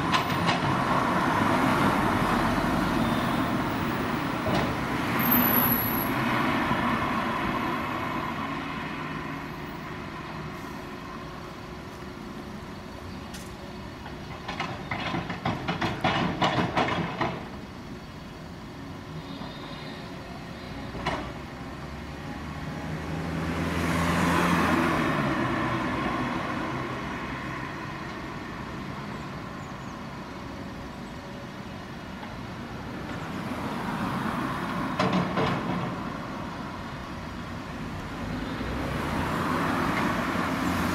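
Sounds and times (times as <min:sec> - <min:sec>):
car passing: 0:21.7 - 0:29.1, 0:33.0 - 0:37.0, 0:37.8 - 0:40.9.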